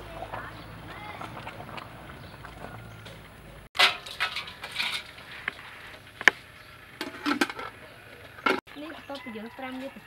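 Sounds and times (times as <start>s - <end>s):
water sloshing in metal bowl: 0.8s - 6.1s.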